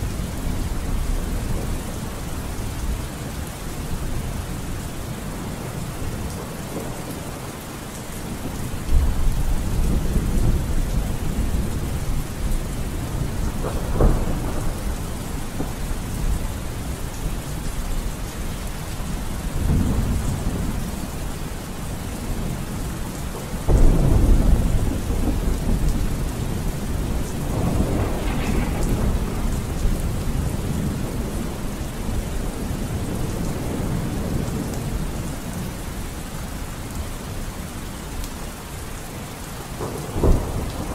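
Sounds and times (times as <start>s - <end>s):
steady rain: 0.0s - 40.9s
thunder rolling: 8.4s - 17.1s, 23.7s - 34.7s, 39.8s - 40.9s.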